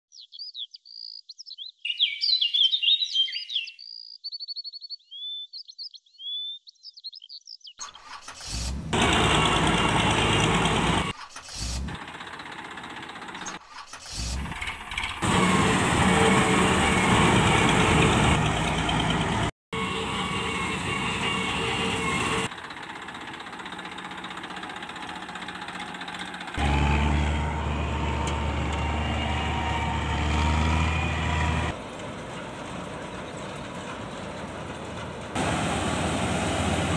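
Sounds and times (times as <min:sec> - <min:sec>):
toy tractor engine noise: 0:07.8 - 0:36.9.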